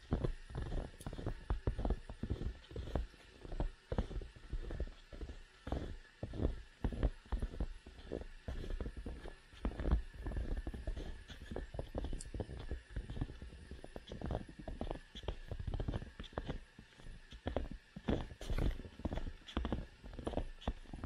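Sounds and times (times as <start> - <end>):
footsteps crunching in snow: 0.0 - 21.0.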